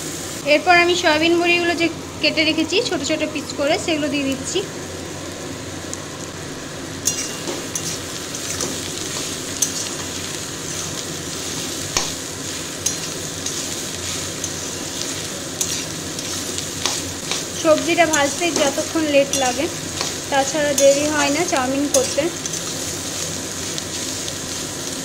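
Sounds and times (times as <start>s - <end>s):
vegetables sizzling in oil: 0.0s - 25.0s
metal spatula scraping pan: 7.1s - 11.8s, 12.6s - 22.8s.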